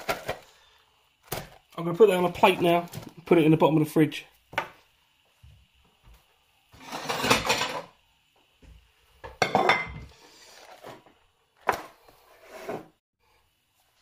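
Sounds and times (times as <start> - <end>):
plate clattering: 6.8 - 7.9, 9.4 - 10.0.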